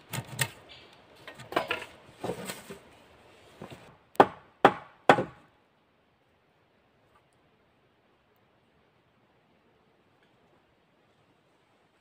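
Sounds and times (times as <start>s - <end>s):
wooden poles knocking: 3.6s - 5.5s
sharp strikes on wood: 4.2s - 5.5s.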